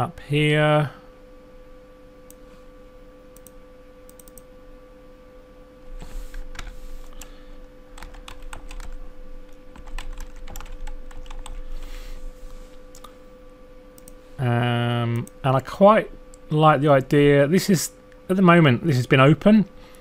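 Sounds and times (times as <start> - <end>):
faint electrical hum: 0.0 - 20.0
keyboard typing clicks: 3.4 - 4.5, 8.0 - 9.0, 9.7 - 11.6.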